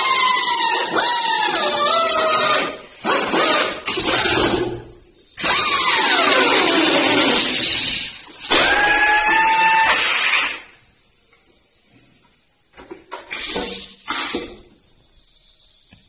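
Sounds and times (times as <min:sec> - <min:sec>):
short air blasts: 0:13.3 - 0:16.0.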